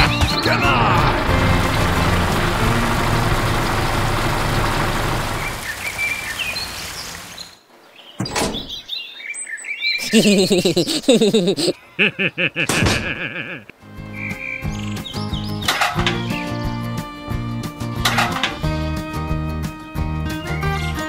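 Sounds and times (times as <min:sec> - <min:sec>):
background music: 0:00.0 - 0:03.3, 0:13.8 - 0:21.0
birds chirping: 0:05.3 - 0:17.0
low wavering bird calls: 0:11.7 - 0:16.6.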